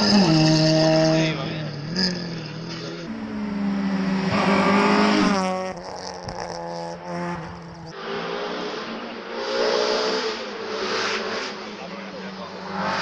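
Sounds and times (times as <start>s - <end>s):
car engine racing past: 6.4s - 13.0s.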